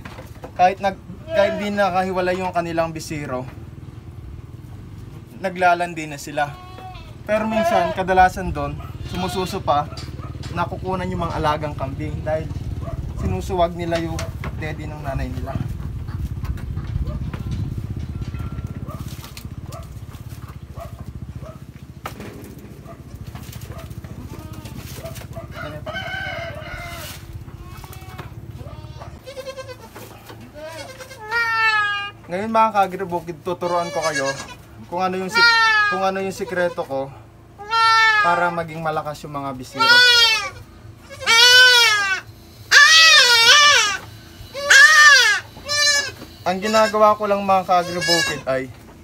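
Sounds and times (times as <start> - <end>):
goat kid bleating: 1.1 - 2.4, 6.2 - 9.9, 24.0 - 25.8, 26.5 - 32.3, 33.4 - 38.7, 39.6 - 48.7
rooster crowing: 25.0 - 27.4
faint animal calls: 39.7 - 48.5.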